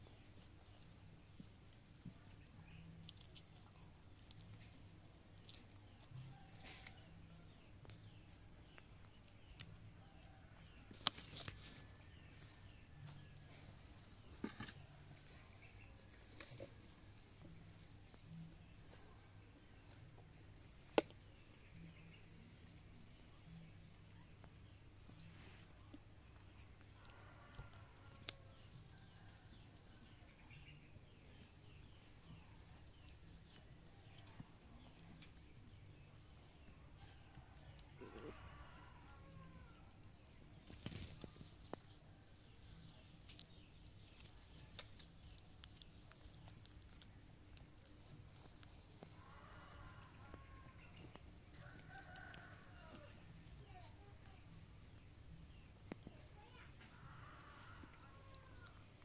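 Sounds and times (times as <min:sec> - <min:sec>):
faint low hum: 0:00.0 - 0:59.0
bird chirping: 0:02.1 - 0:04.4
soft rustles: 0:10.8 - 0:21.0, 0:44.2 - 0:54.8.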